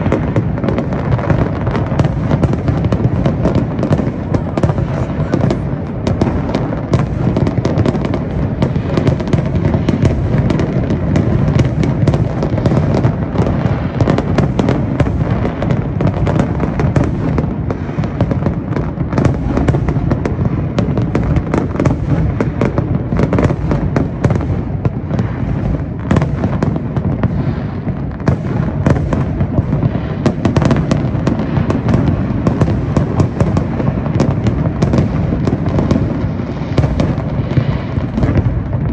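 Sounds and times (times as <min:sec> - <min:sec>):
fireworks bursting and crackling: 0:00.0 - 0:38.9.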